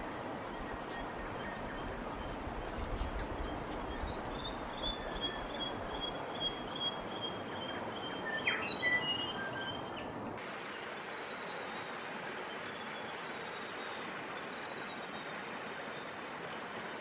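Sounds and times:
river water rushing: 4.1 - 17.0.

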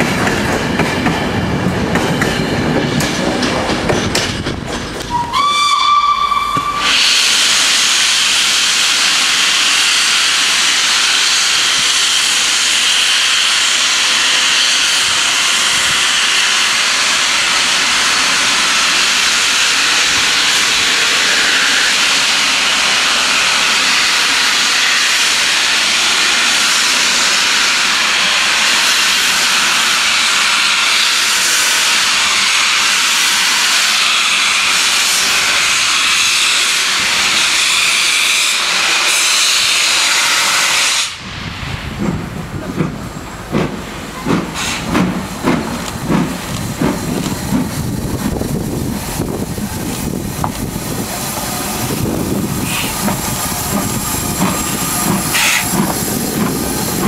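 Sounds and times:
steam locomotive exhaust chuffs: 0.0 - 57.0
loud hiss of steam: 5.1 - 57.0.

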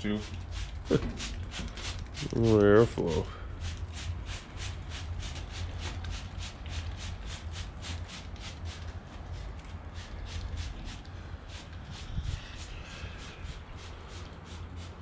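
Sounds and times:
spray bottle squirts: 0.2 - 2.6.

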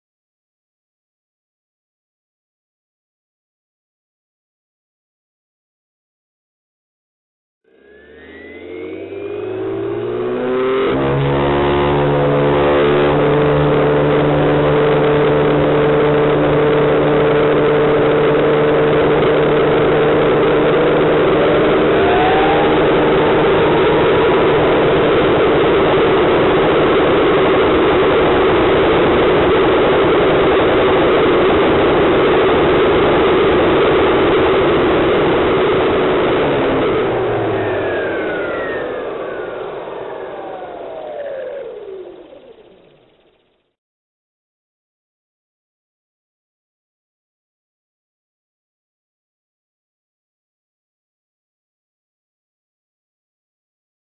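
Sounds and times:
faint second whine: 7.7 - 43.6
model helicopter whine: 7.7 - 43.6.

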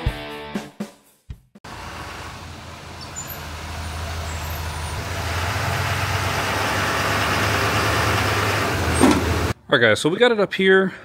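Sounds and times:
diesel truck engine humming: 1.6 - 9.6.

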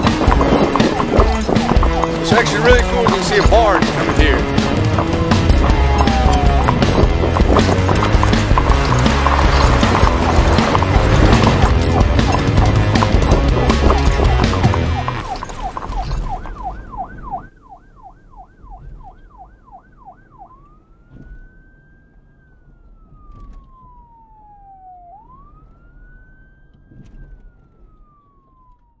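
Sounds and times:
police siren yelp and wail: 0.0 - 29.0.

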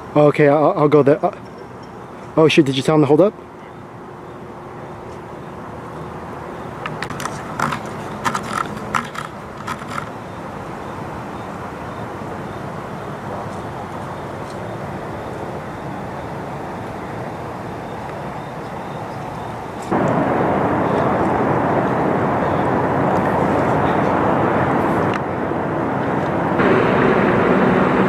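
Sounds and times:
machinery rumbling: 12.1 - 28.0.

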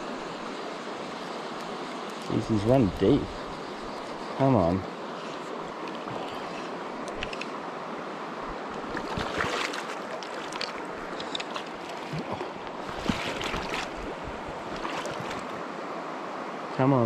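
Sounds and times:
river flowing: 0.0 - 17.0
fish splashing at surface: 9.0 - 14.1.

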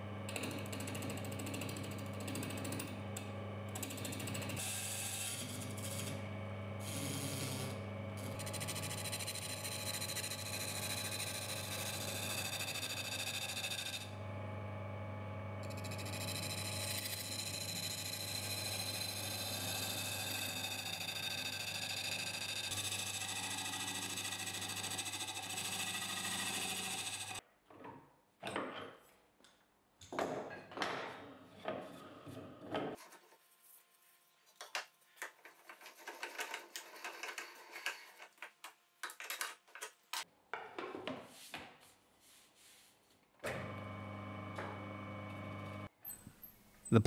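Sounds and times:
file against spinning wheel: 3.8 - 6.2, 6.8 - 14.2, 15.6 - 27.4
lathe motor running: 15.6 - 27.4.

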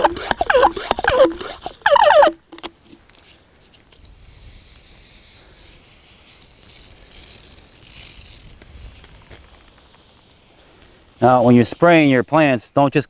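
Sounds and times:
pressure sprayer hissing: 0.0 - 2.7.

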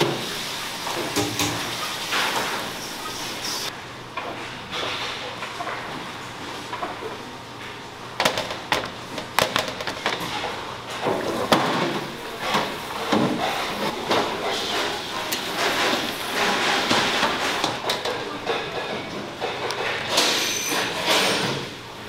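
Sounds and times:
metal pans clanking on a rack: 0.9 - 2.9, 8.2 - 21.8.

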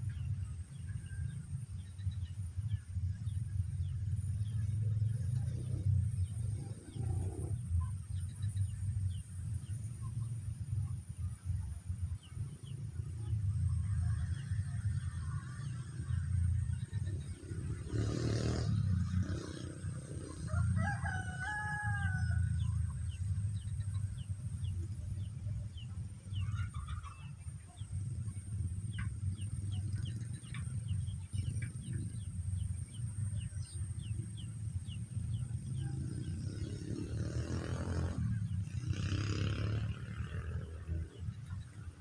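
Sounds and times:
rooster crowing: 20.4 - 22.8.

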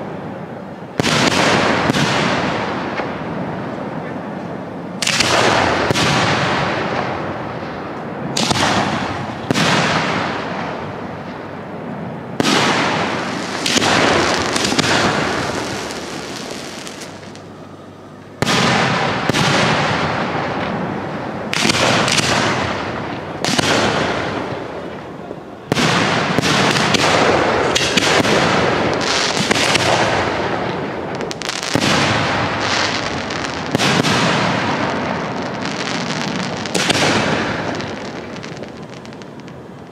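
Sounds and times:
firework shells bursting: 12.4 - 17.4.

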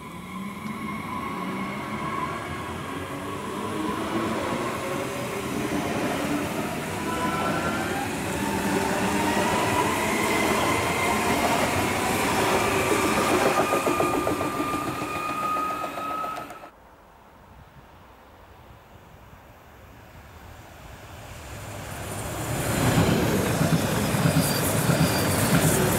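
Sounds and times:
faint wind: 0.0 - 25.9
wheels rumbling on track: 2.6 - 16.7
electric train motor whine: 6.6 - 16.7.

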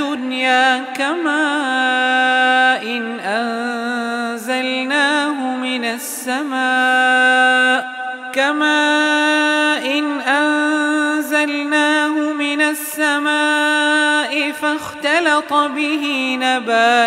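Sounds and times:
man chanting melodically: 0.0 - 17.0.

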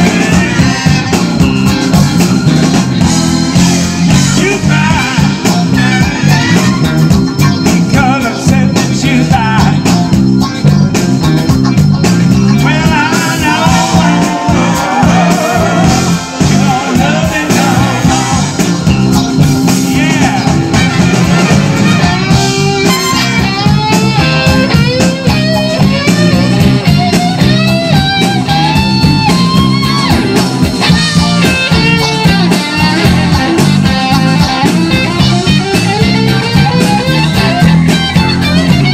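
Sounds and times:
person singing: 0.0 - 1.2, 4.2 - 6.7, 12.5 - 22.7
bass guitar: 0.0 - 38.9
drums: 0.0 - 38.9
electric guitars: 0.0 - 38.9.

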